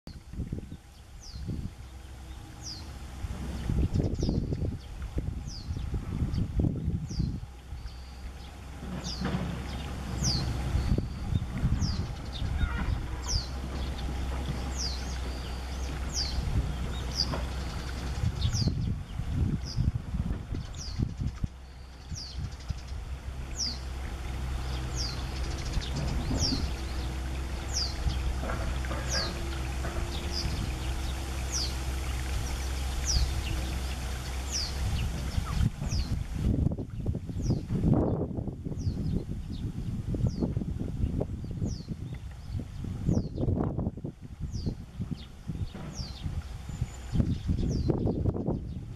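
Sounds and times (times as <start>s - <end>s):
steady low rumble: 0.0s - 48.9s
bird alarm calls: 9.0s - 18.7s, 24.7s - 36.2s.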